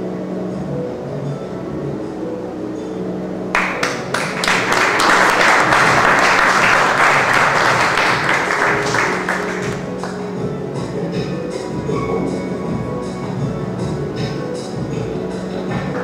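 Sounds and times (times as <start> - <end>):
background music: 0.0 - 16.0
audience applauding: 3.6 - 10.2.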